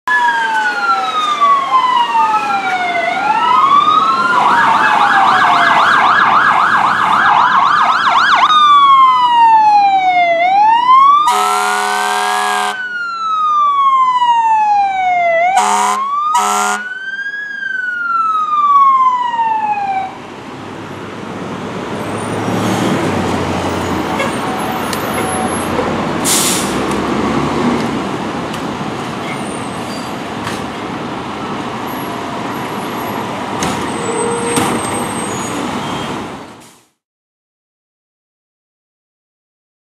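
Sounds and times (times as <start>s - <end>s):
siren yelp: 0.1s - 20.2s
fire truck siren wailing: 0.1s - 36.5s
traffic: 0.1s - 37.0s
diesel engines running: 10.5s - 14.2s, 14.9s - 36.8s
air horn blasts: 11.3s - 12.8s, 15.6s - 16.9s
short hiss: 26.2s - 26.8s.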